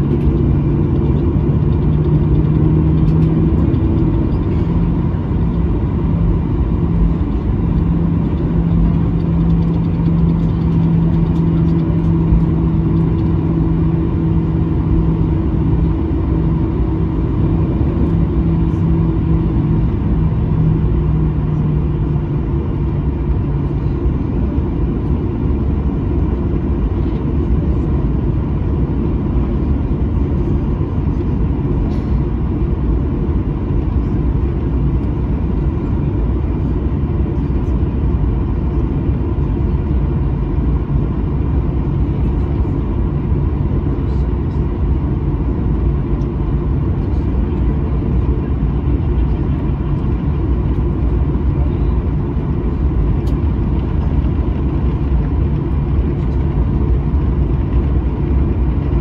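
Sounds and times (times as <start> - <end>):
airframe and wheels rumbling: 0.0 - 25.2
aircraft engines idling: 0.0 - 59.0
engine hum: 0.0 - 59.0.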